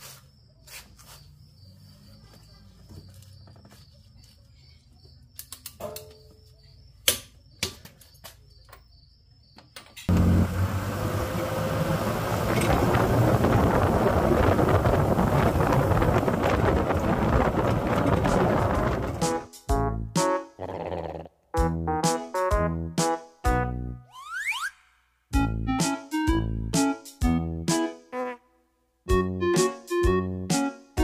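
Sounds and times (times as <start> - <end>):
cricket chirping: 0.0 - 10.1
wind and road noise: 10.1 - 19.5.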